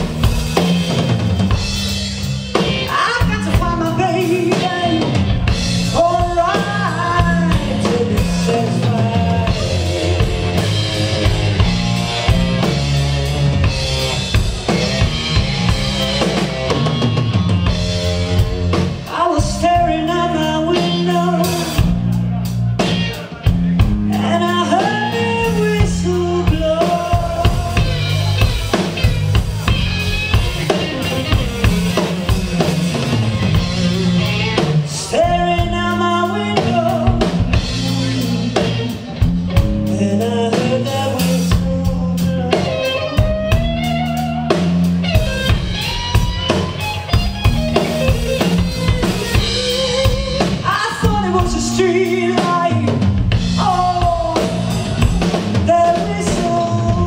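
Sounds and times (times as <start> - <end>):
bass guitar: 0.0 - 57.0
drum kit: 0.0 - 57.0
electric guitar: 0.0 - 57.0
woman singing into a microphone: 6.0 - 10.3.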